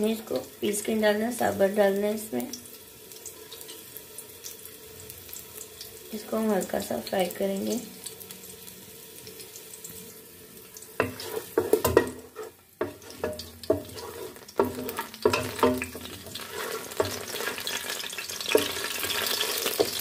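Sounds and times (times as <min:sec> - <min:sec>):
garlic sizzling in oil: 0:00.0 - 0:20.0
spoon knocking against metal pot: 0:11.0 - 0:12.2, 0:14.6 - 0:16.0.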